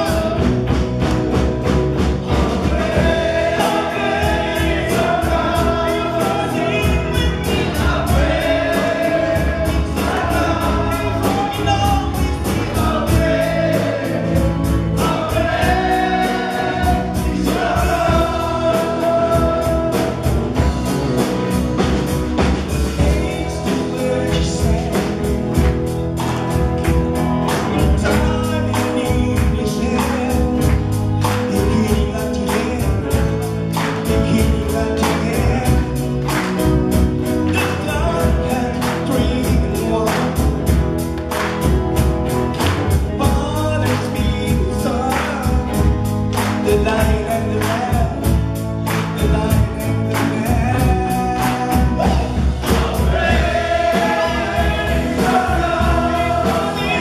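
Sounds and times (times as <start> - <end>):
drums steady beat: 0.0 - 57.0
live band playing: 0.0 - 57.0
voices singing through microphones: 2.3 - 20.6, 50.8 - 57.0.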